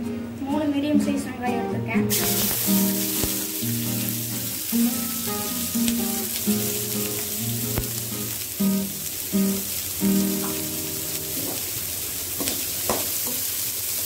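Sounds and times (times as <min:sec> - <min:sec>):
instrumental background music: 0:00.0 - 0:11.6
onions sizzling in oil: 0:02.1 - 0:14.0.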